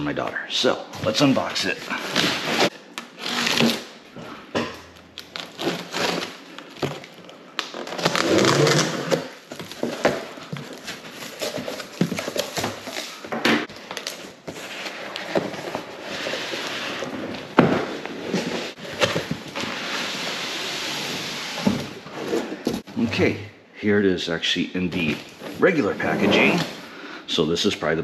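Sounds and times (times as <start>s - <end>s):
packing tape peeling: 5.2s - 9.4s
cardboard rustling and knocking: 9.4s - 13.6s.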